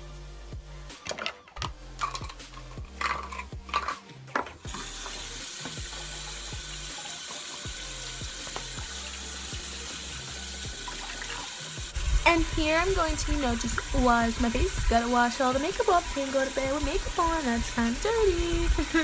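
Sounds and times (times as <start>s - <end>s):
handling clicks and knocks: 1.0s - 4.7s
tap water running into sink: 1.1s - 19.0s.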